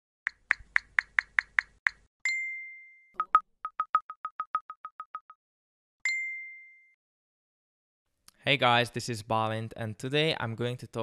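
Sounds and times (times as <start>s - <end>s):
bright ding: 6.1s - 7.0s.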